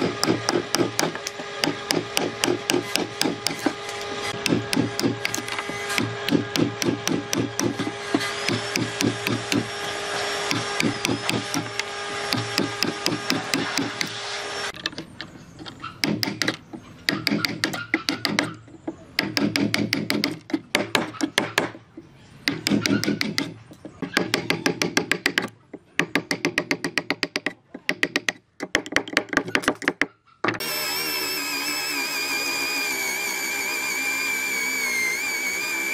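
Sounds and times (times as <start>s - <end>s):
power tool motor humming: 0.0s - 14.8s, 30.6s - 35.9s
rapid tapping on wood: 16.0s - 18.6s.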